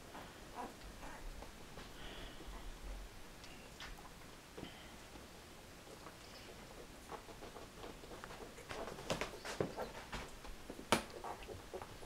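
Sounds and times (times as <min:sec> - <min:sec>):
puppies suckling: 0:05.8 - 0:12.0.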